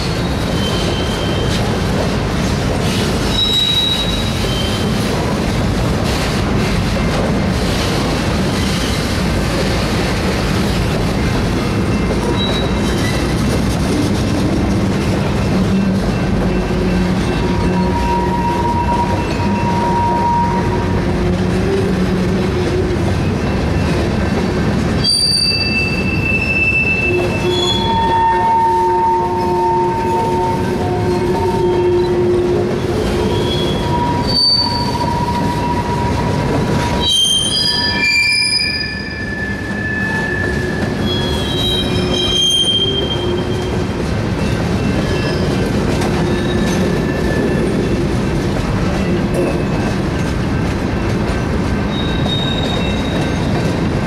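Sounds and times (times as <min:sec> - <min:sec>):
steel wheels squealing: 0:00.0 - 0:01.8, 0:02.9 - 0:05.1, 0:11.7 - 0:13.6, 0:15.6 - 0:24.4, 0:25.0 - 0:48.1, 0:51.0 - 0:53.9
rumble of wheels on rail: 0:00.0 - 0:54.0.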